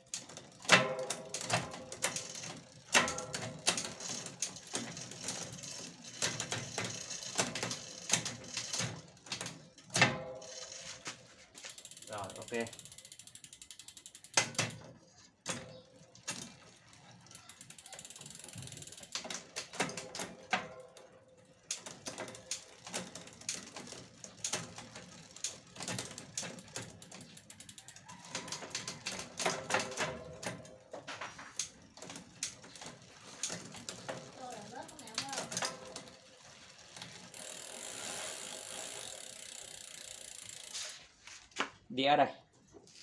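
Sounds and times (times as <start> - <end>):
bicycle chain running over cassette: 0.0 - 41.1
rear hub pawls ticking rapidly: 11.6 - 14.8, 15.7 - 19.7, 21.3 - 30.4, 31.6 - 40.8.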